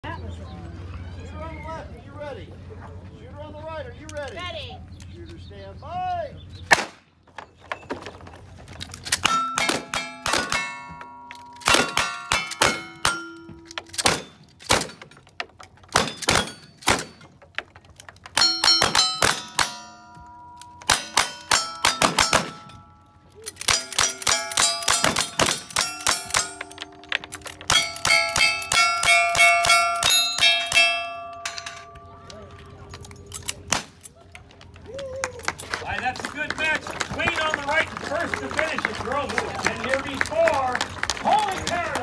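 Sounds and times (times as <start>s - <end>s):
steel targets ringing: 9.2s - 15.0s, 15.9s - 17.3s, 18.4s - 33.7s
gunshots: 14.0s - 15.1s, 20.9s - 22.7s.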